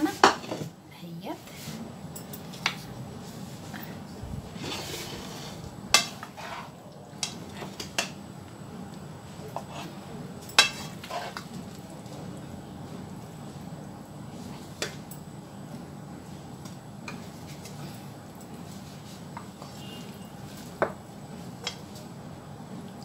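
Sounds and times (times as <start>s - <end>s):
spoon scraping frying pan: 4.6s - 8.0s, 9.6s - 10.0s, 10.6s - 11.5s.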